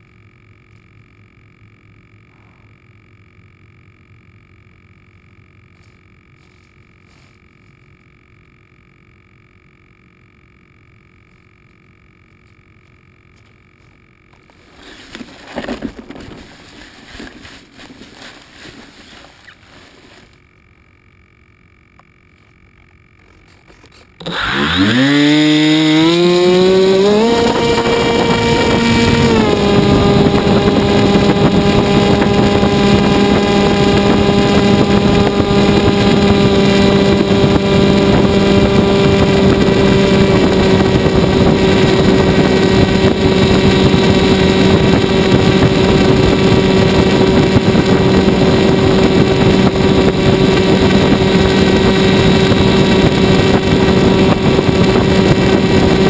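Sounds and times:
model airplane motor and propeller: 0.0s - 56.0s.

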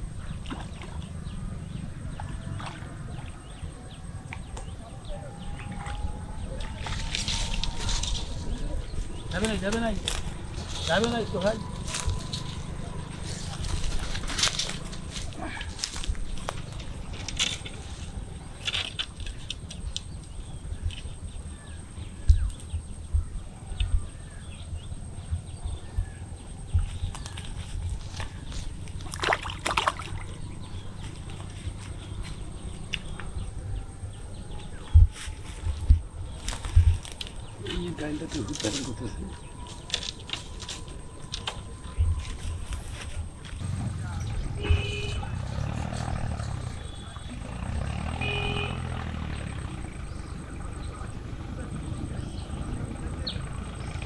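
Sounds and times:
birds chirping: 0.0s - 54.0s
faint bird chirps: 43.9s - 54.0s.

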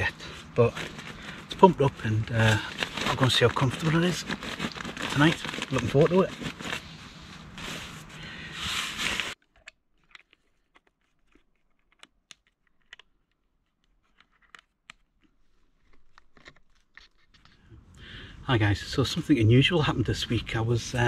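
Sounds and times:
crinkly rustling of bag and mat: 0.0s - 9.4s.

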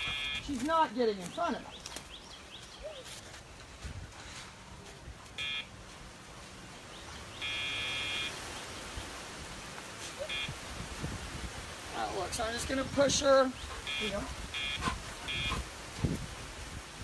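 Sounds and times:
electronic beeps: 5.4s - 5.7s, 7.4s - 8.3s.

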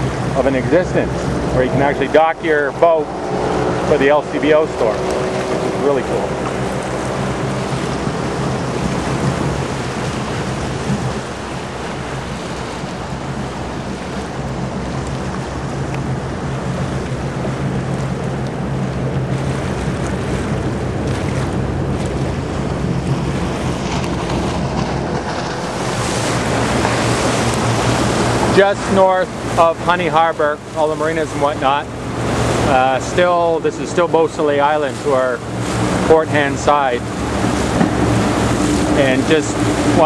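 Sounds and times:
wind on microphone: 0.0s - 30.7s
boat engine drone: 0.0s - 40.0s
water along hull: 0.0s - 40.0s.

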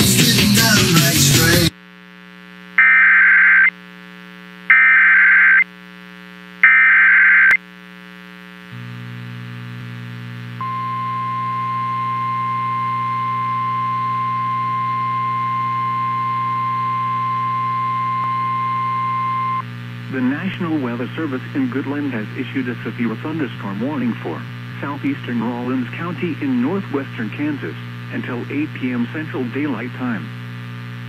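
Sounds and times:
screeching digital data bursts: 4.7s - 5.6s
low hum: 8.8s - 27.2s.

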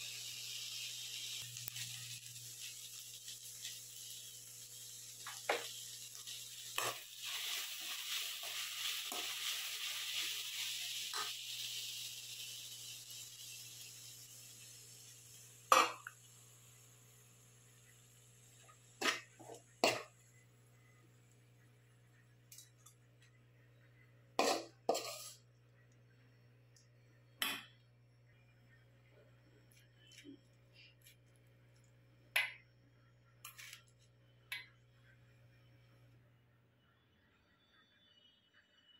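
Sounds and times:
leaves sizzling in a pan: 0.0s - 21.6s, 24.4s - 25.5s
spatula scraping and knocking pan: 24.4s - 25.4s.

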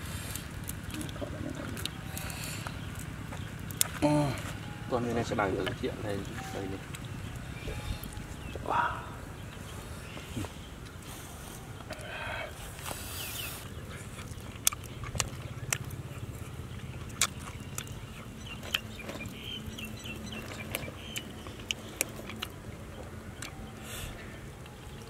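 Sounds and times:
crackles and clicks of handled meat: 0.3s - 4.6s, 13.6s - 23.7s, 24.4s - 25.0s.

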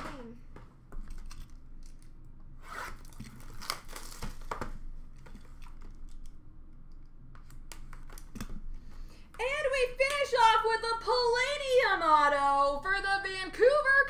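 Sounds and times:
wrapper crinkling: 2.9s - 4.6s.

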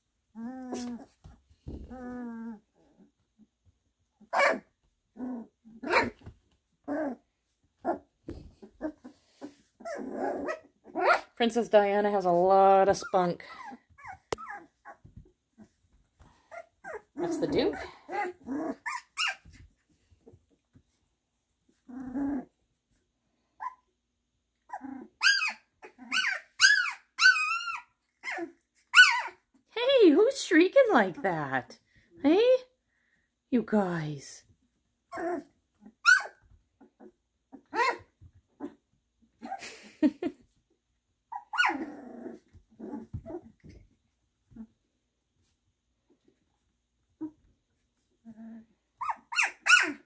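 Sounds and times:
puppies yipping and barking: 4.2s - 4.8s, 5.8s - 7.2s, 7.8s - 11.4s, 13.0s - 15.8s, 16.4s - 19.8s, 24.6s - 29.6s, 35.0s - 39.9s, 41.2s - 43.8s, 49.0s - 50.0s.

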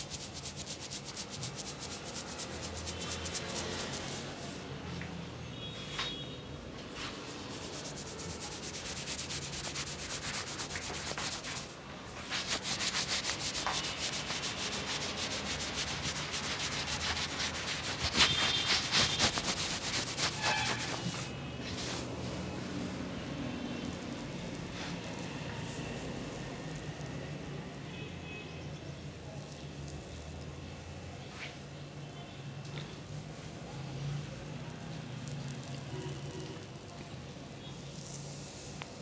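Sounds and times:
fingers rubbing through hair: 0.0s - 4.6s, 7.0s - 22.1s.

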